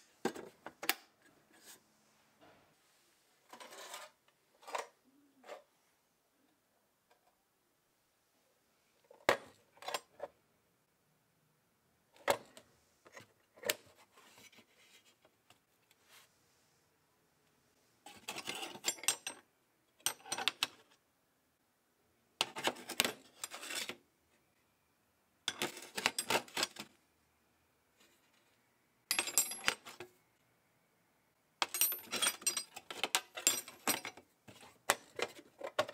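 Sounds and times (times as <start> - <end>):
wrenches clinking and jangling: 18.1 - 19.4, 31.6 - 34.2.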